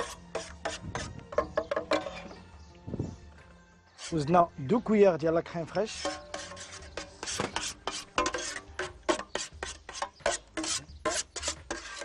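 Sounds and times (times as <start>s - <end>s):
whisk scraping a steel pan: 0.0s - 2.4s, 4.0s - 4.5s, 5.7s - 12.0s.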